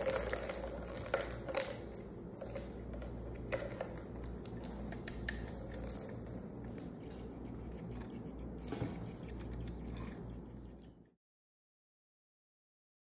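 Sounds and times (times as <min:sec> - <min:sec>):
plastic toys clicking and tapping: 0:00.0 - 0:10.2.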